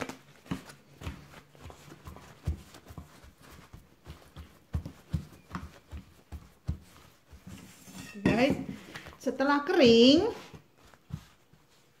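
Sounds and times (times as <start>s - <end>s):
paper towel patting fish: 0.0s - 7.8s, 9.7s - 12.0s.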